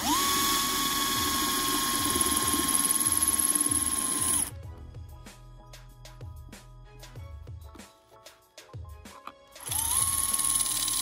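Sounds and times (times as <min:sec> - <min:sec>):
power drill whining through metal: 0:00.0 - 0:04.5, 0:09.6 - 0:11.0
background music with a beat: 0:02.1 - 0:10.3.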